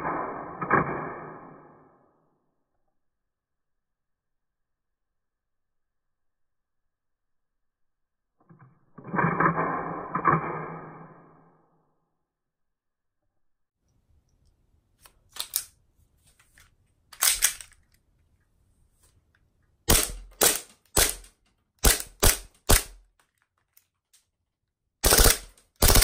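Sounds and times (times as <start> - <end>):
pistol slide racking clacks: 17.1 - 18.0.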